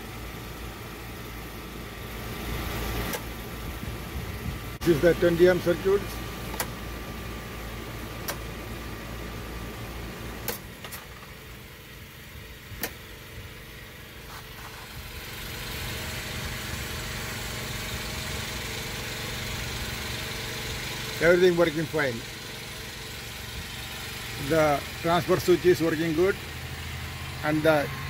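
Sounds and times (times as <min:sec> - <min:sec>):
generator running: 0:00.0 - 0:28.0
rocker switches clicking: 0:06.5 - 0:06.8, 0:08.2 - 0:08.4.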